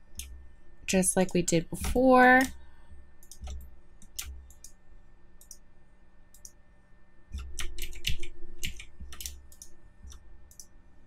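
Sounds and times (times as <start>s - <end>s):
computer keyboard clicks: 3.2s - 4.8s, 7.4s - 10.7s.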